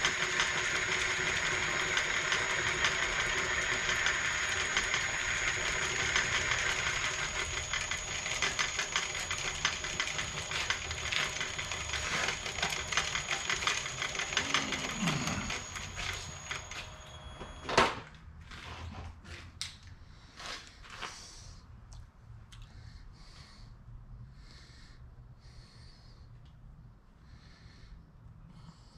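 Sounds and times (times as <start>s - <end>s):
milling machine cutting metal: 0.0s - 17.7s.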